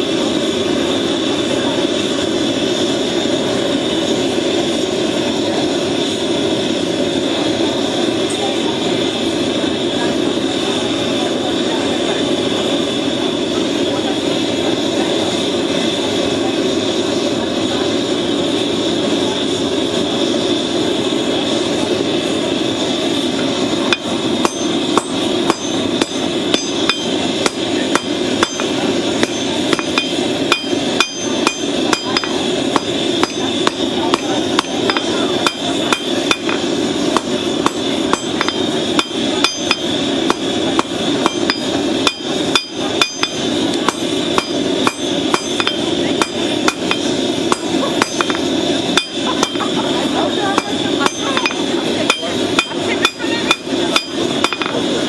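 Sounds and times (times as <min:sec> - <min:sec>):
continuous roar: 0:00.0 - 0:55.0
hammer striking metal on anvil: 0:23.9 - 0:49.7, 0:50.6 - 0:54.8.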